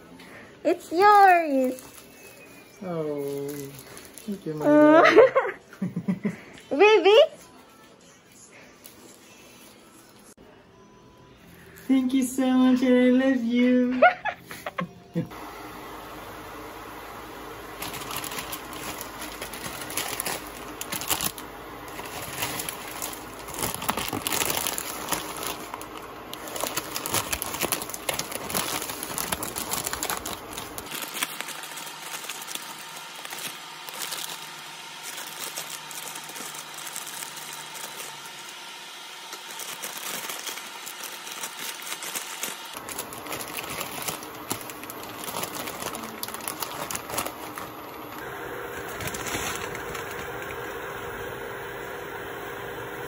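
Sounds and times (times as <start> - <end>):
plastic packets crinkling: 1.0 - 5.3, 17.6 - 51.3.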